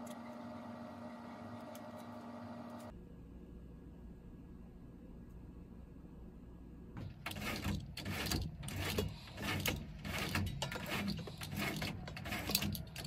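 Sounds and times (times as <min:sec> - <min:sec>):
roller blind pull cord scraping: 0:07.0 - 0:13.0.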